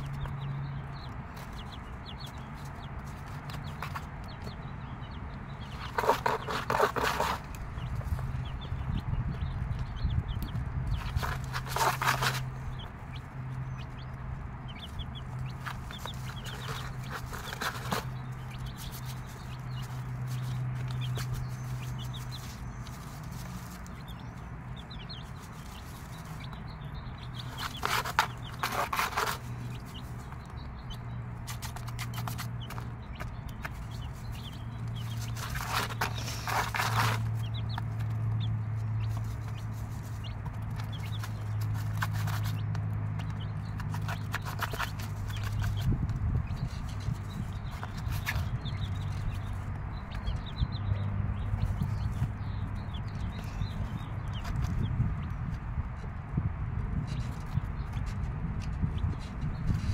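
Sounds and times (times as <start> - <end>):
chicks peeping: 0.0 - 59.9
rustle in wood shavings: 14.7 - 30.5, 31.3 - 42.8.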